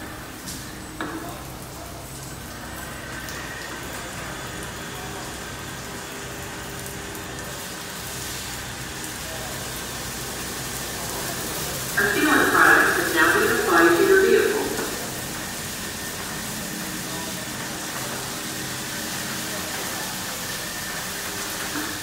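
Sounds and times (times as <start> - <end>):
water spraying hiss: 0.0 - 22.0.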